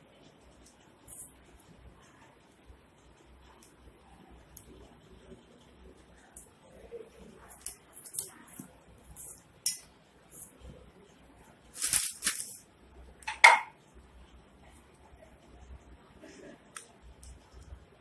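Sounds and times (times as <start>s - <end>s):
plastic packet crinkle: 11.7s - 12.6s.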